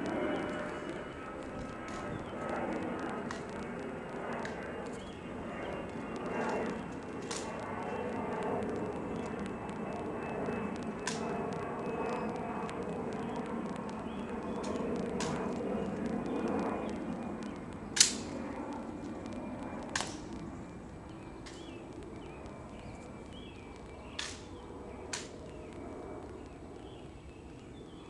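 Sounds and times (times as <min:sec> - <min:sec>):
rifle snaps and clicks: 0:05.8 - 0:09.8, 0:10.8 - 0:20.5, 0:23.8 - 0:26.6.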